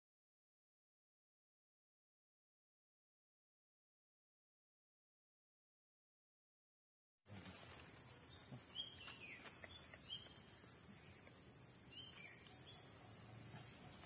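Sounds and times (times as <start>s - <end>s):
insect chorus drone: 7.3s - 14.0s.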